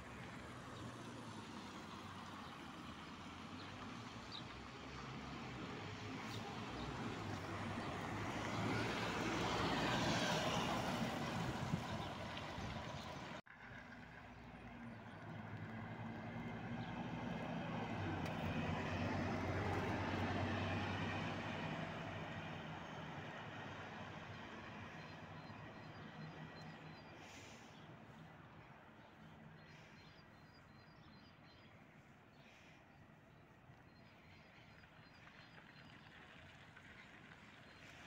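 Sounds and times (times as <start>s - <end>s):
bus engine hum pulling away: 0.0s - 29.9s
bus driving past: 0.0s - 38.0s.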